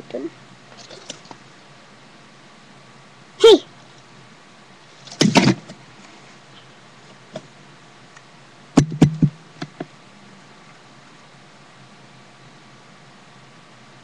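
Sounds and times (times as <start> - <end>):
sharp knocks: 5.2 - 5.7, 8.8 - 9.8.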